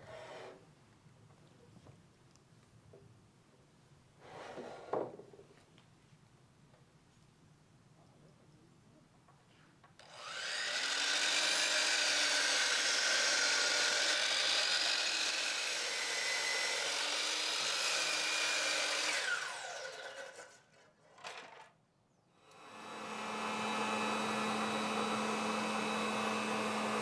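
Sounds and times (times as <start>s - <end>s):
miter saw cutting wood: 10.0s - 20.6s, 22.5s - 27.0s
saw blade winding down: 10.0s - 20.6s, 22.5s - 27.0s.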